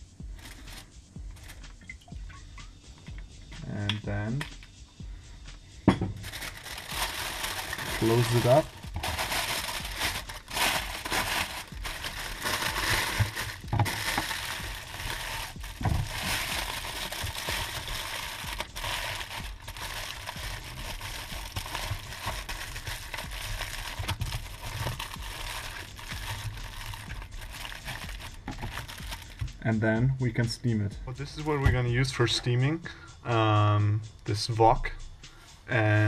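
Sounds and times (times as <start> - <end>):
foil crinkling: 0.4 - 1.6, 6.2 - 29.5.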